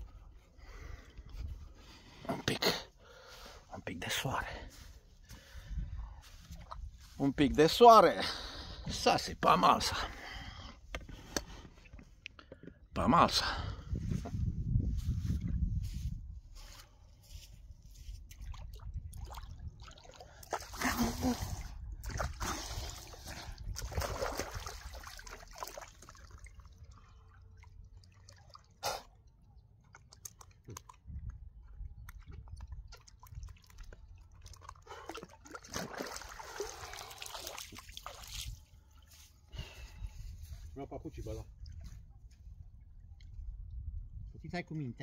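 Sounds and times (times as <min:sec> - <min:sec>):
sea water sloshing and splashing: 0:18.3 - 0:31.1, 0:32.1 - 0:39.1.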